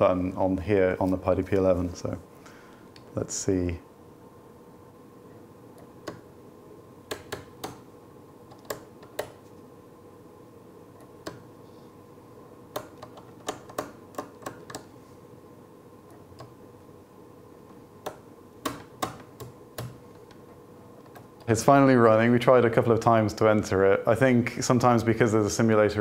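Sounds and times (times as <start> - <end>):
toggle switches clicking: 5.8 - 6.3, 7.1 - 7.9, 8.5 - 9.4.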